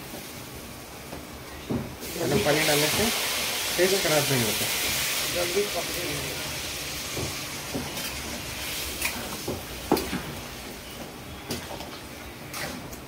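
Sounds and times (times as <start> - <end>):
hot water sizzling in a pan: 2.0 - 10.8.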